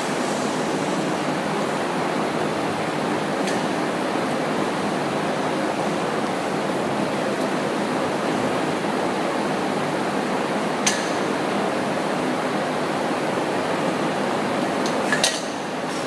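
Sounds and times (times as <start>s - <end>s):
steady rushing noise: 0.0s - 8.0s.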